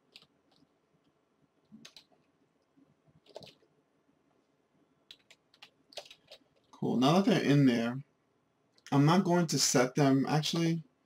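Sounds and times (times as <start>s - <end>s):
computer mouse clicks: 0.1s - 0.7s, 1.7s - 2.3s, 3.2s - 3.7s, 5.1s - 6.8s.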